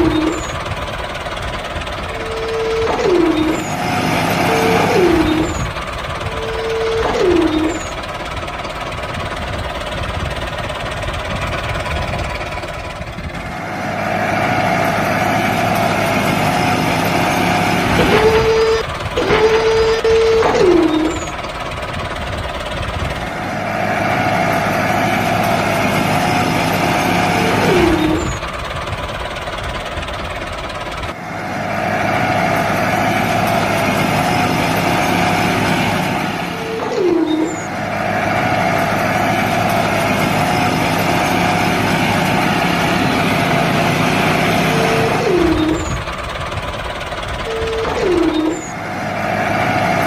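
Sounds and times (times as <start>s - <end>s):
model tractor engine drone: 0.0s - 50.0s
short falling whine: 2.1s - 8.1s, 17.4s - 21.4s, 36.4s - 38.6s.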